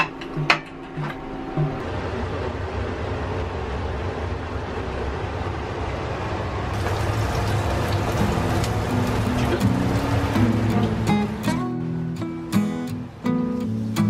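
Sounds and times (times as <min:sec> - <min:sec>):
extractor fans running: 0:00.0 - 0:14.0
guitar music: 0:06.8 - 0:14.0.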